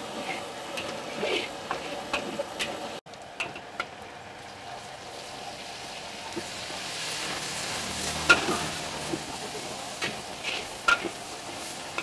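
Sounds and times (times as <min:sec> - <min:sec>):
oil sizzling in a wok: 0:00.0 - 0:12.0
metal spatula clanging on wok: 0:08.3 - 0:08.7.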